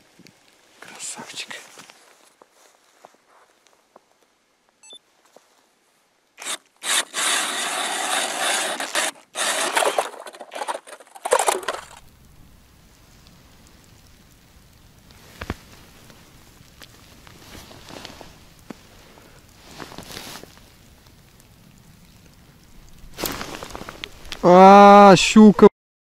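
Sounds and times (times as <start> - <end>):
ice auger scraping and crunching: 6.4 - 12.0, 23.1 - 24.5.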